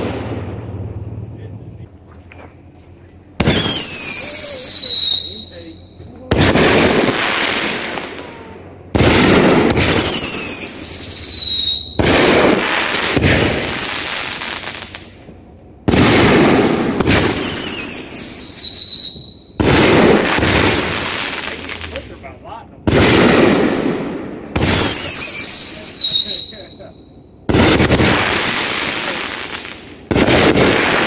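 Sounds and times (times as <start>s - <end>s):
fireworks bursting: 0.0s - 31.0s
high falling whistle: 9.8s - 12.0s, 17.2s - 19.6s, 24.7s - 27.1s.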